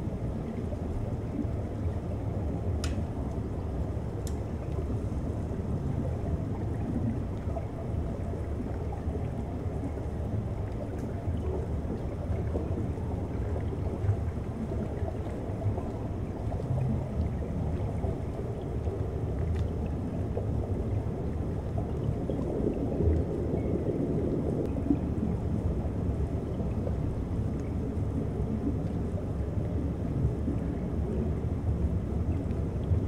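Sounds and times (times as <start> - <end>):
underwater seawater rumble: 0.0 - 33.0
faint underwater clicks: 2.7 - 3.5, 4.1 - 4.9, 19.4 - 20.5.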